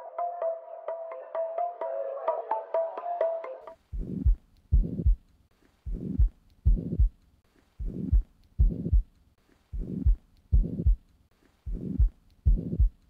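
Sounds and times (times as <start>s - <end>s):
heart murmur: 3.9s - 5.2s, 5.8s - 7.2s, 7.8s - 9.1s, 9.7s - 11.0s, 11.7s - 13.0s
heartbeat through stethoscope: 3.9s - 7.2s, 7.8s - 9.1s, 9.7s - 13.0s.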